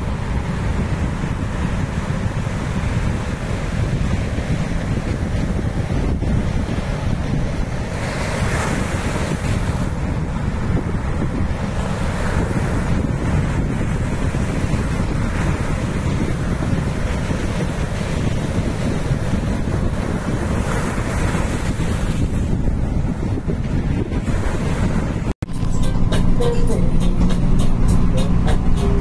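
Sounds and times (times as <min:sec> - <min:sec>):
ocean surf breaking: 0:00.0 - 0:25.4
wind rumbling on microphone: 0:00.0 - 0:29.0.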